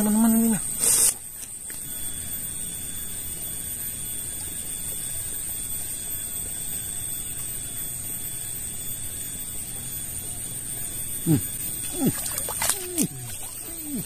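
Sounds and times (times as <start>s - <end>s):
water rushing in ditch: 12.0s - 13.5s.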